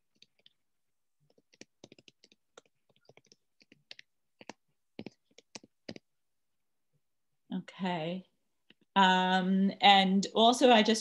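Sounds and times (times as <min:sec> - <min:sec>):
typing on computer keyboard: 0:01.3 - 0:06.0.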